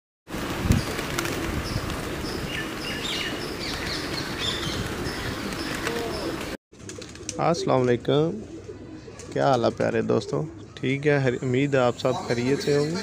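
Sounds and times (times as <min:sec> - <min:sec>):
small birds chirping: 0:00.7 - 0:06.5, 0:08.4 - 0:13.0.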